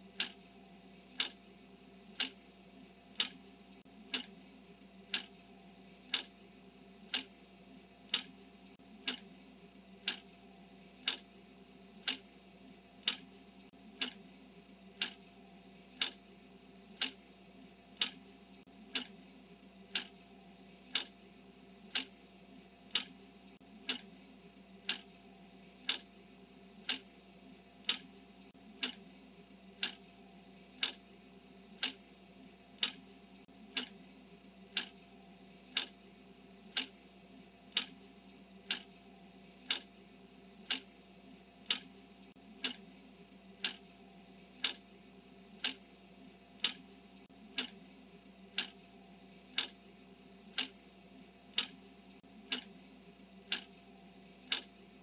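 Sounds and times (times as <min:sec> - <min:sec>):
faint steady hum: 0:00.0 - 0:55.0
clock ticking: 0:00.1 - 0:00.4, 0:01.1 - 0:01.4, 0:02.1 - 0:02.5, 0:03.1 - 0:04.4, 0:05.1 - 0:05.4, 0:06.0 - 0:06.4, 0:07.1 - 0:07.4, 0:08.0 - 0:08.4, 0:09.0 - 0:09.4, 0:10.0 - 0:10.4, 0:11.0 - 0:11.3, 0:12.0 - 0:12.4, 0:13.0 - 0:14.3, 0:15.0 - 0:15.3, 0:16.0 - 0:16.3, 0:16.9 - 0:17.3, 0:17.9 - 0:19.2, 0:19.9 - 0:20.2, 0:20.9 - 0:21.2, 0:21.9 - 0:22.2, 0:22.9 - 0:24.2, 0:24.8 - 0:25.1, 0:25.8 - 0:26.1, 0:26.8 - 0:27.2, 0:27.8 - 0:29.1, 0:29.8 - 0:30.0, 0:30.8 - 0:31.1, 0:31.8 - 0:32.1, 0:32.7 - 0:34.0, 0:34.7 - 0:35.1, 0:35.7 - 0:36.0, 0:36.6 - 0:37.1, 0:37.7 - 0:39.0, 0:39.6 - 0:39.9, 0:40.6 - 0:41.0, 0:41.6 - 0:42.9, 0:43.6 - 0:43.9, 0:44.6 - 0:44.8, 0:45.6 - 0:46.0, 0:46.6 - 0:47.8, 0:48.5 - 0:48.9, 0:49.5 - 0:49.8, 0:50.5 - 0:50.9, 0:51.5 - 0:52.8, 0:53.4 - 0:53.8, 0:54.4 - 0:54.8.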